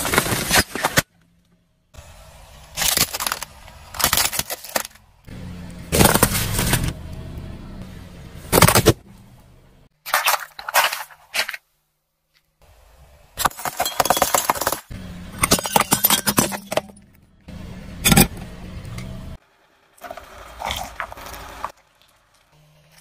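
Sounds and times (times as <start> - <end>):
sharp crunch: 2.7 - 5.1
car tyre crushing plastic: 2.7 - 5.3, 5.9 - 7.0, 8.5 - 9.0
car engine hum: 4.8 - 9.9, 14.9 - 19.9.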